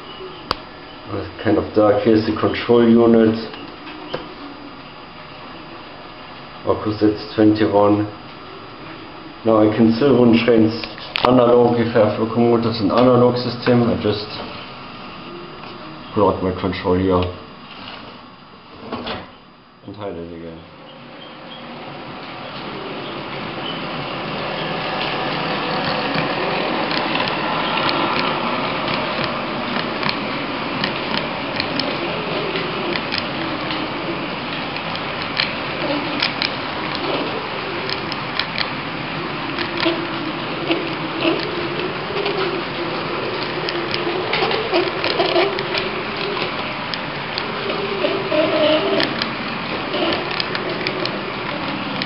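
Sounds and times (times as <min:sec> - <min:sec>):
sharp track clicks: 0:22.2 - 0:47.9, 0:48.9 - 0:52.0.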